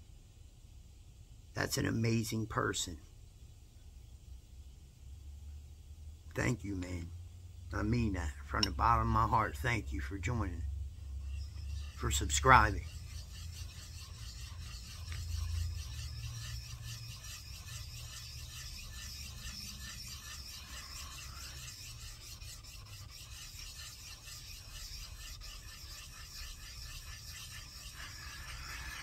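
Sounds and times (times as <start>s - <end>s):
metal scraping on sharpening stone: 8.5s - 10.1s, 11.1s - 29.0s.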